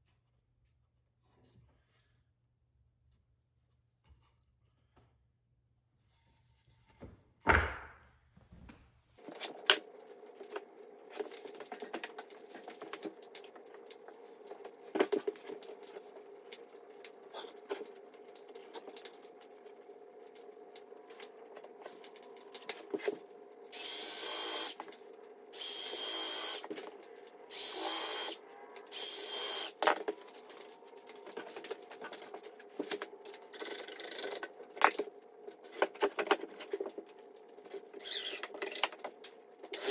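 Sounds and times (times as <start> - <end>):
steady low hum: 9.2 - 39.9.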